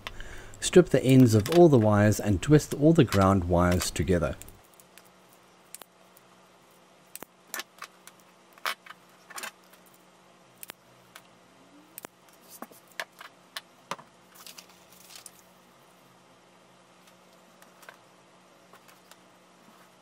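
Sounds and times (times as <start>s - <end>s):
wire cutters snipping and clicking: 0.9s - 5.0s.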